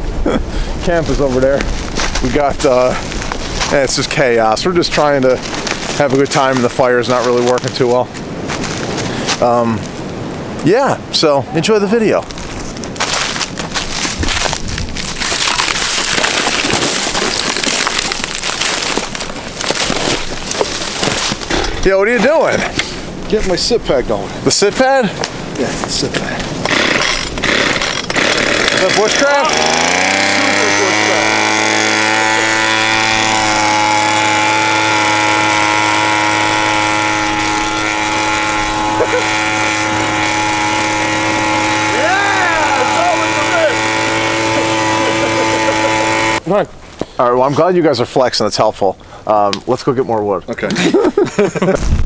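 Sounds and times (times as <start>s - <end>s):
two-stroke leaf blower running: 0.6s - 7.7s, 26.6s - 46.5s
footsteps crunching dry leaves: 1.0s - 4.0s, 5.0s - 10.0s, 12.2s - 21.5s
twigs snapping: 1.6s - 3.8s, 5.1s - 10.4s, 12.2s - 21.8s.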